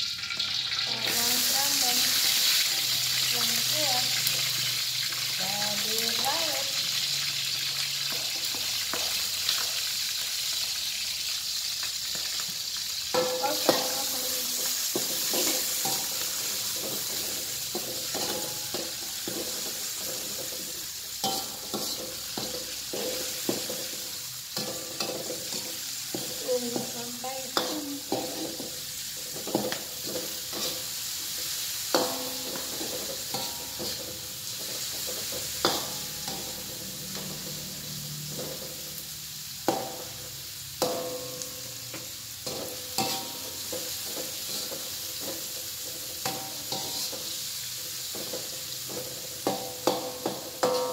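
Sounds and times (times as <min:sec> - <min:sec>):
food sizzling in hot oil: 0:00.0 - 0:50.9
metal spatula scraping a wok: 0:13.1 - 0:50.9
spatula knocking against wok: 0:16.8 - 0:24.0, 0:48.1 - 0:50.9.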